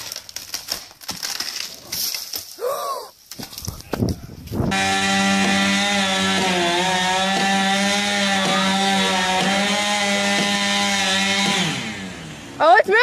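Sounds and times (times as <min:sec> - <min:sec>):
chainsaw running at high revs: 0:04.7 - 0:12.8.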